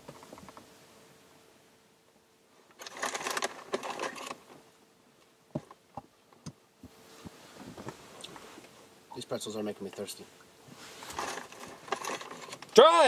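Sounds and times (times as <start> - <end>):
plastic bag crinkling: 2.8 - 4.4, 11.2 - 12.6.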